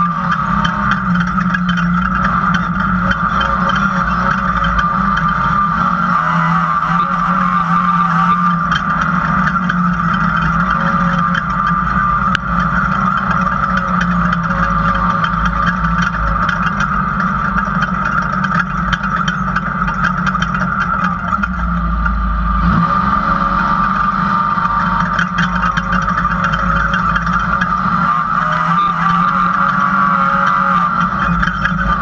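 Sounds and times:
chassis rattling: 0.0s - 32.0s
race car engine under load: 0.0s - 32.0s.

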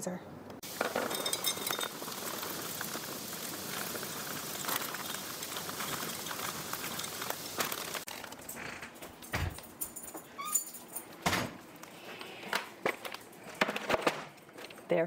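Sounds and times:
chocolate chips pouring into glass cup: 0.7s - 8.1s.

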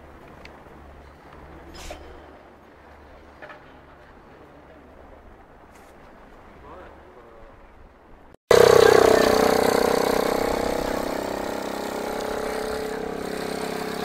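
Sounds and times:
propeller engine idling: 8.5s - 14.0s.

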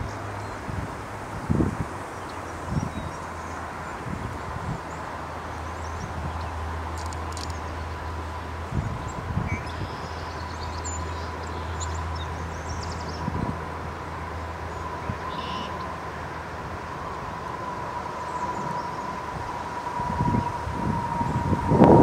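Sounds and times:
distant traffic rumble: 0.0s - 22.0s.

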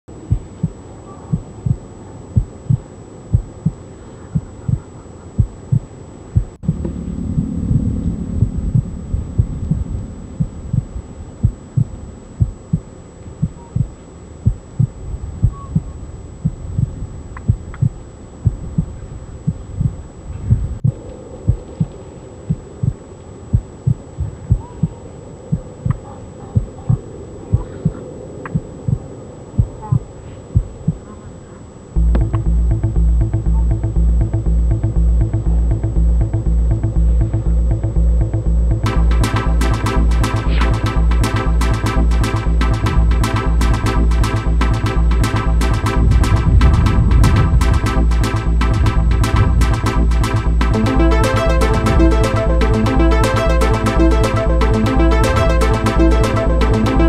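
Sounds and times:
low hum: 0.0s - 26.0s, 31.9s - 57.0s
low thumping beat: 0.3s - 3.8s, 4.4s - 4.8s, 5.4s - 16.9s, 17.5s - 20.0s, 32.0s - 57.0s.

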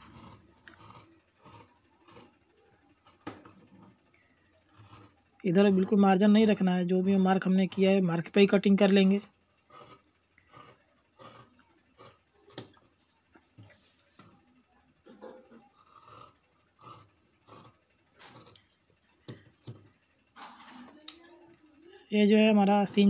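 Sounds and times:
shears cutting cloth: 0.0s - 3.6s
cricket chirping: 0.0s - 23.0s.

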